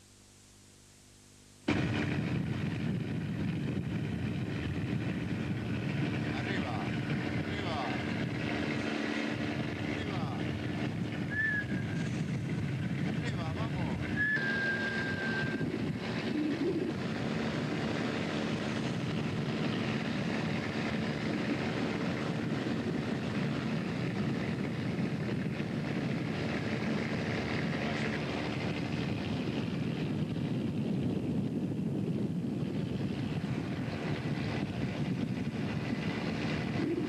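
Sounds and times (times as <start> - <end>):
sea washing along hull: 1.7 - 31.0
boat engine droning: 1.7 - 37.0.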